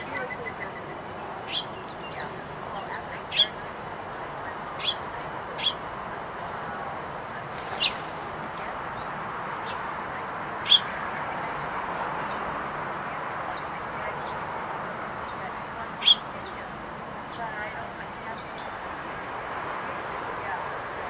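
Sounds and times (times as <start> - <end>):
songbird chip calls: 0.0 - 6.6, 10.6 - 12.5, 13.1 - 20.3
outdoor background hiss: 0.0 - 21.0.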